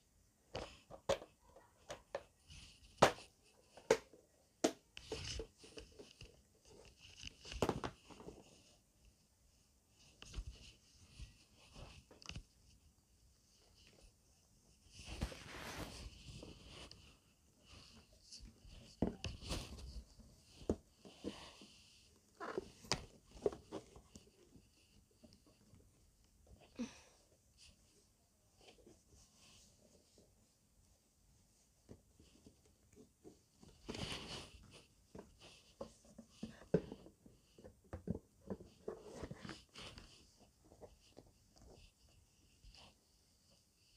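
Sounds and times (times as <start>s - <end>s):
scrape: 14.8s - 24.0s, 33.8s - 36.9s.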